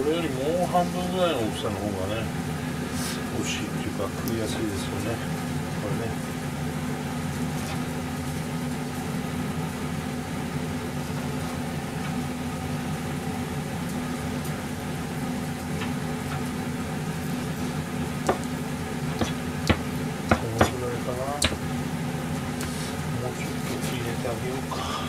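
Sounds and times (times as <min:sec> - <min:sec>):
kitchen appliance humming: 0:00.0 - 0:25.0
knife tapping cutting board: 0:18.3 - 0:18.5, 0:19.2 - 0:20.8, 0:21.4 - 0:21.6
knife cutting raw meat: 0:19.2 - 0:20.8.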